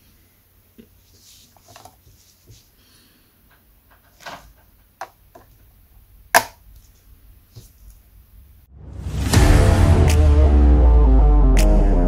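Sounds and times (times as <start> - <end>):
hands clicking plastic car body: 6.3 - 6.6.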